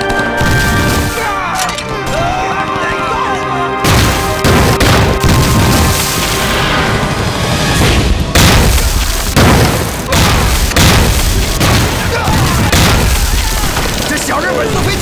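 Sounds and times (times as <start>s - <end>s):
dramatic score music: 0.0s - 15.0s
heavy explosions: 3.8s - 15.0s.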